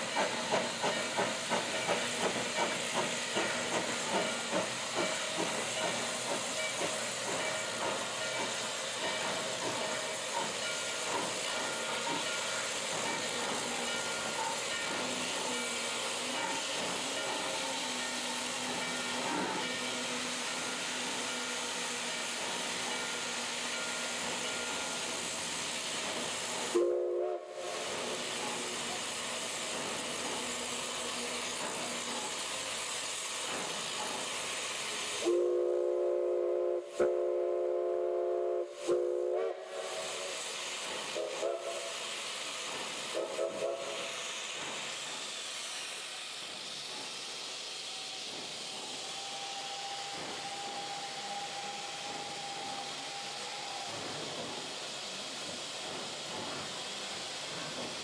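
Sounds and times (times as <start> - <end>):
steam locomotive hissing: 0.0 - 58.0
steam chime whistle blasts: 5.4 - 32.4, 34.9 - 44.4, 47.6 - 55.2.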